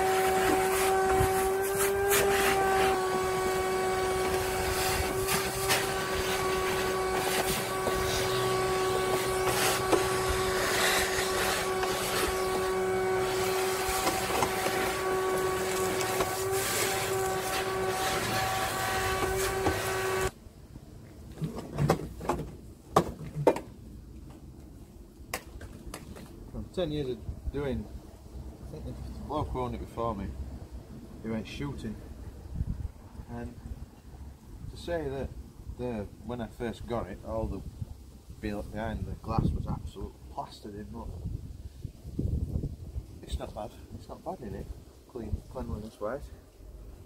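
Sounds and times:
vacuum cleaner humming: 0:00.0 - 0:20.4.

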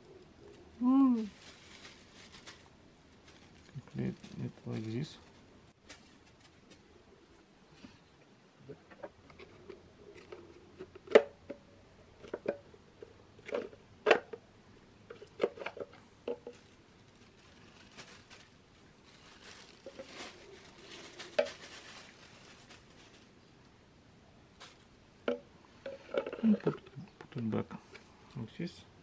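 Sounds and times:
plastic bag rustling: 0:00.0 - 0:07.4, 0:15.1 - 0:23.5, 0:24.5 - 0:25.0.

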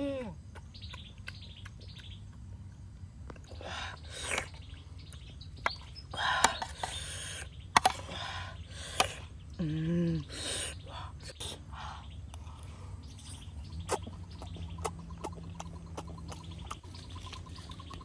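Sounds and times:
birds chirping faintly: 0:00.0 - 0:18.0.

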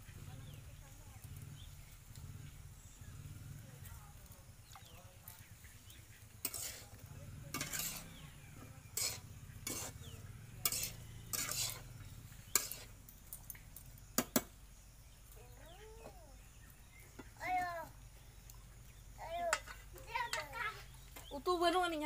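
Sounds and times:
oil sizzling: 0:04.0 - 0:22.0
metal spatula scraping pan: 0:06.4 - 0:13.0.

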